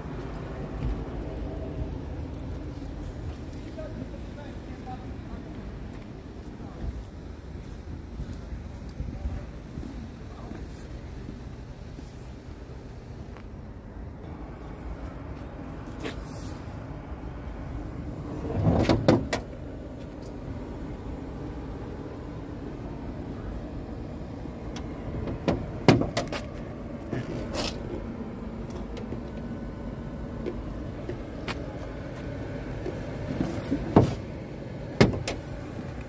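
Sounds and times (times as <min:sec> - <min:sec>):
truck cab door knocks and clicks: 0:18.6 - 0:19.5, 0:25.2 - 0:26.5, 0:35.0 - 0:35.4.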